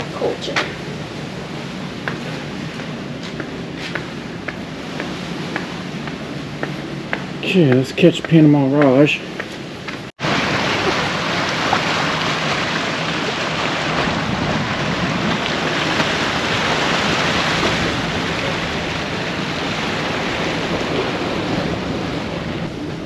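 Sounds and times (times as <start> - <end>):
wind on microphone: 9.3 - 23.0
waves washing against rocks: 10.2 - 23.0.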